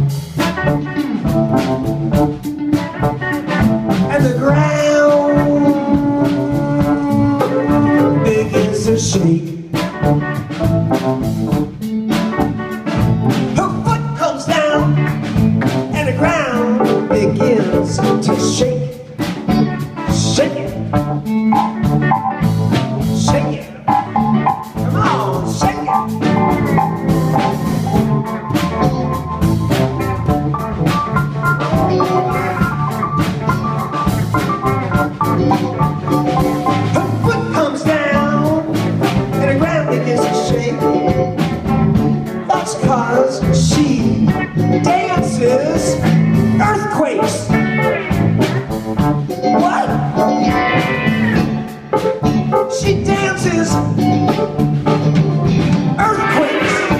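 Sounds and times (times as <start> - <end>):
drum kit: 0.0 - 56.9
electric bass: 0.0 - 56.9
electric guitar: 0.0 - 56.9
organ: 0.0 - 56.9
pedal steel guitar: 16.3 - 56.9.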